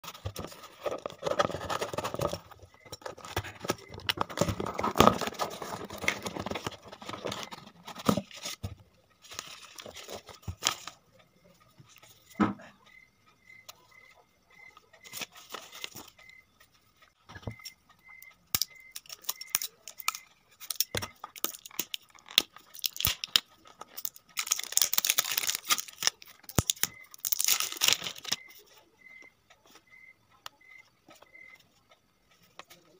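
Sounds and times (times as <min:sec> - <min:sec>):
cardboard tearing and crinkling: 0:00.1 - 0:08.6, 0:24.0 - 0:28.4.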